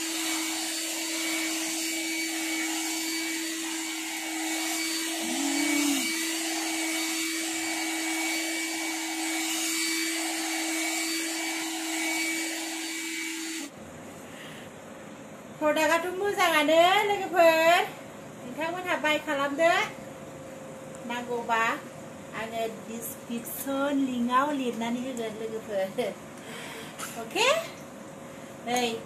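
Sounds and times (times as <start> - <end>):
grooming dryer motor hum: 0.0 - 13.8.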